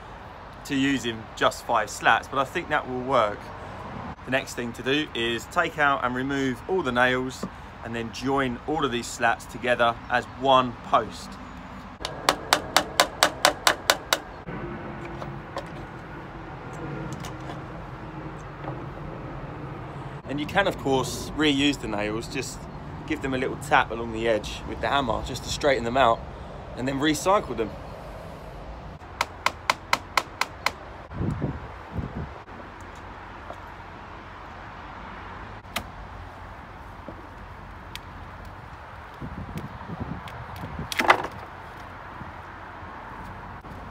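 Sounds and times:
hammer striking nails in wood: 0:12.0 - 0:14.3, 0:29.2 - 0:30.8.

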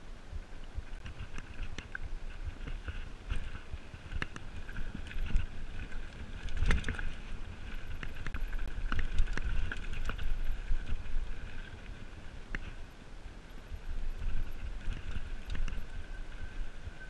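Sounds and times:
bike tyres on dirt: 0:00.1 - 0:17.0
bike rattling: 0:00.7 - 0:17.0
wind on microphone: 0:13.6 - 0:17.0.

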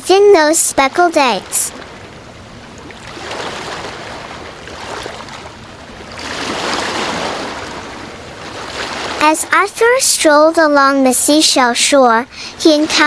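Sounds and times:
ocean waves rushing in: 0:00.3 - 0:09.6, 0:12.2 - 0:13.0.

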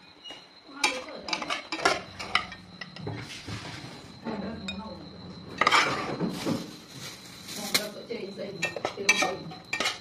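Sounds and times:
dishes clattering: 0:00.8 - 0:03.3, 0:05.5 - 0:06.7, 0:08.6 - 0:10.0
metal ladle clinking on pot: 0:08.6 - 0:10.0.

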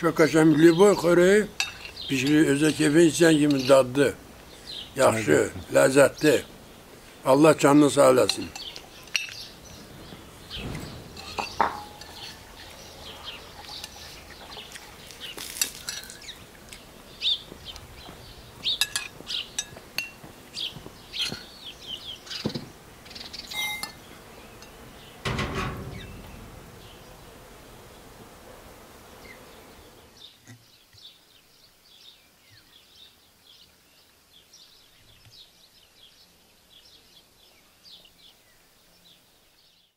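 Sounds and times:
small birds chirping: 0:00.0 - 0:28.2, 0:29.0 - 0:39.9
crockery and cutlery clinking: 0:01.6 - 0:02.6, 0:08.1 - 0:09.5, 0:10.6 - 0:14.9, 0:15.6 - 0:16.3, 0:18.8 - 0:20.2, 0:23.5 - 0:24.0
soft knocks: 0:25.2 - 0:27.4.

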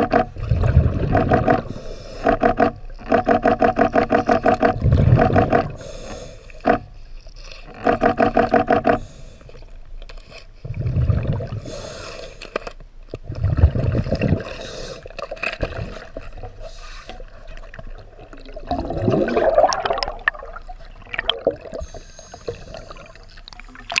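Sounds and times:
exhaled bubbles gurgling: 0:00.0 - 0:06.0, 0:10.6 - 0:11.9, 0:13.2 - 0:24.0
regulator inhale buzzing: 0:01.6 - 0:02.6, 0:05.6 - 0:07.0, 0:08.6 - 0:09.6, 0:11.6 - 0:12.5, 0:21.7 - 0:23.1.

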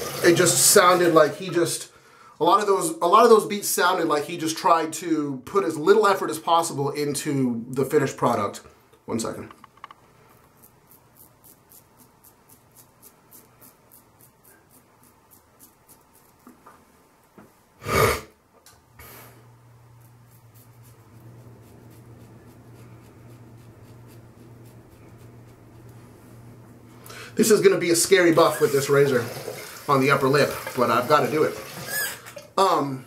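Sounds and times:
razor scraping stubble: 0:10.3 - 0:16.6, 0:19.9 - 0:26.2
steady low hum: 0:18.8 - 0:27.7.

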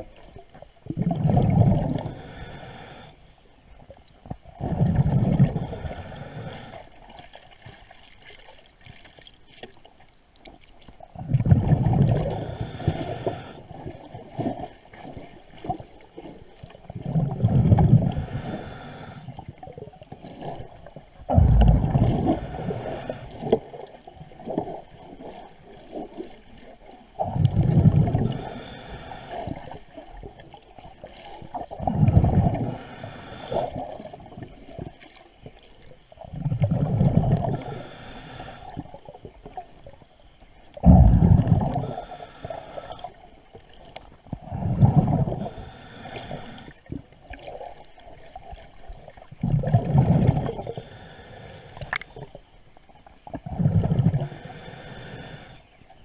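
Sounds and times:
regulator breath bubbling underwater: 0:00.9 - 0:03.2, 0:04.6 - 0:06.9, 0:11.2 - 0:14.0, 0:17.0 - 0:19.6, 0:21.3 - 0:24.0, 0:27.2 - 0:29.8, 0:31.6 - 0:34.4, 0:36.3 - 0:39.0, 0:40.8 - 0:43.2, 0:44.4 - 0:46.8, 0:49.4 - 0:52.4, 0:53.3 - 0:55.8.

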